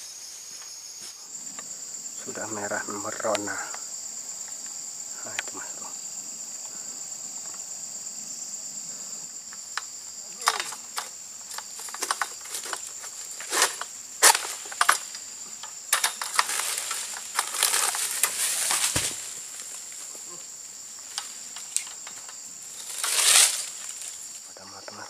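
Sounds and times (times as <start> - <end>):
insects droning: 0.0 - 25.0
sickle cutting palm fronds: 10.4 - 20.4, 21.0 - 24.4
heavy thud on ground: 18.3 - 19.4.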